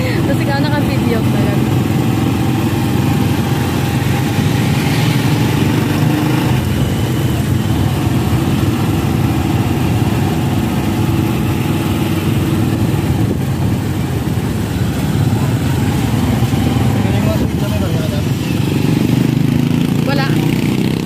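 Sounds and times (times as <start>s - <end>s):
motorcycle engine running: 0.0s - 21.0s
road and wind noise: 0.0s - 21.0s.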